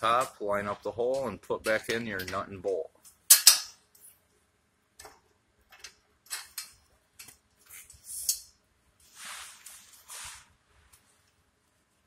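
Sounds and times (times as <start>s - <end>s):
short scraping rustles: 9.0s - 10.6s.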